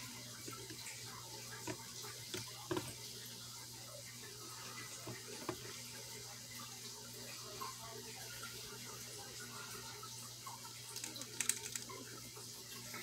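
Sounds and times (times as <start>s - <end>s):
water sloshing in a plastic tub: 0.0s - 3.3s, 4.3s - 6.7s.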